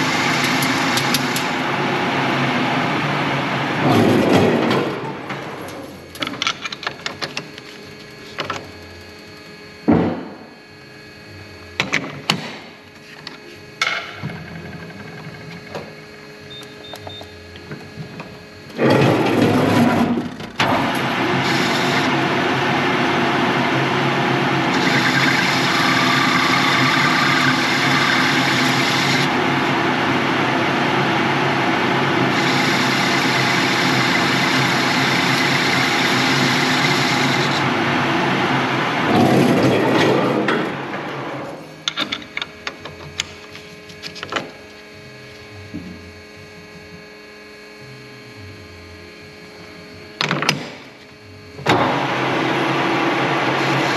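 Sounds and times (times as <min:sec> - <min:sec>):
machine tool running: 0:00.0 - 0:10.6, 0:18.6 - 0:42.9, 0:49.2 - 0:53.9.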